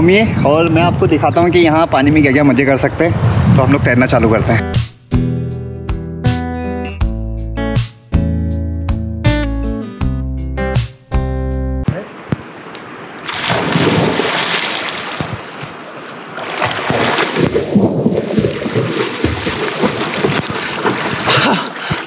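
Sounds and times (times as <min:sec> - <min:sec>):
water splashing and sloshing: 0:11.9 - 0:22.0.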